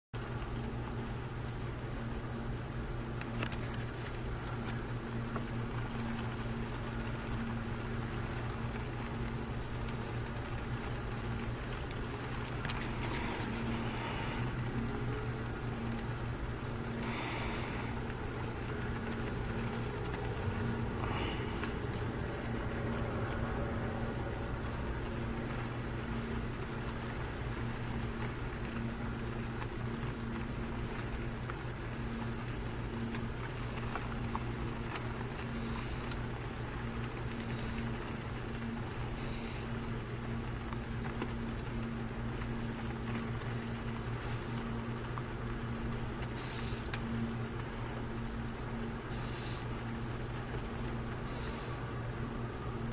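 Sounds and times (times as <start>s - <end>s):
low background hum: 0.2s - 52.9s
faint hiss: 3.2s - 29.6s, 35.5s - 40.4s, 43.7s - 44.9s, 45.7s - 52.9s
bird peeping: 9.7s - 10.3s, 19.0s - 19.9s, 30.7s - 31.3s, 33.5s - 34.0s, 35.5s - 36.2s, 37.4s - 37.9s, 39.1s - 39.7s, 44.1s - 44.6s, 46.3s - 46.9s, 49.1s - 49.7s, 51.2s - 51.8s.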